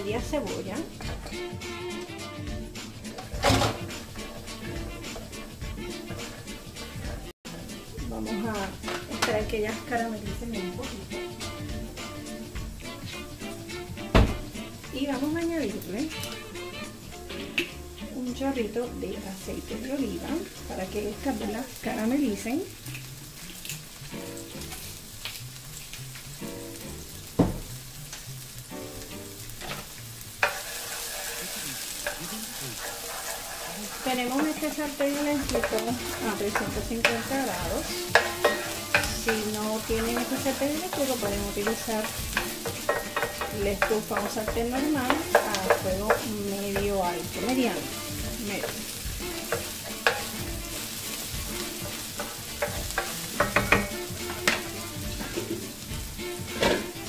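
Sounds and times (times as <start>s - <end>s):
onion sizzling in oil: 0.0s - 57.0s
spoon knocking on pan: 30.4s - 31.4s, 32.8s - 50.7s, 51.3s - 55.6s
wooden spoon stirring: 30.4s - 54.7s.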